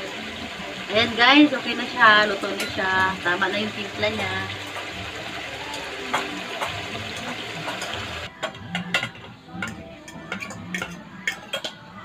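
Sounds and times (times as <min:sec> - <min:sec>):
food sizzling in a wok: 0:00.0 - 0:12.0.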